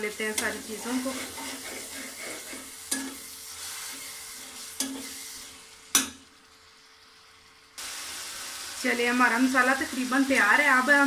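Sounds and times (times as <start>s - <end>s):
masala sizzling in oil: 0.0s - 11.0s
spatula scraping pot: 0.4s - 5.4s.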